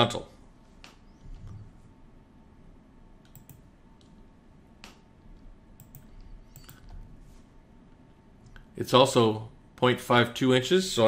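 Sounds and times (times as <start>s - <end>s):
mouse and keyboard clicks: 3.3s - 4.2s, 5.8s - 7.0s.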